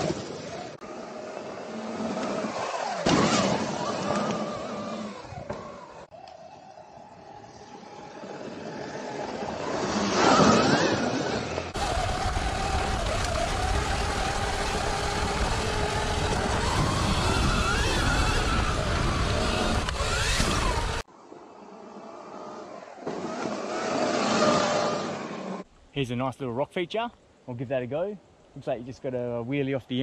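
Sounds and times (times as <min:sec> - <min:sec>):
electric motor whine: 0:00.8 - 0:21.1.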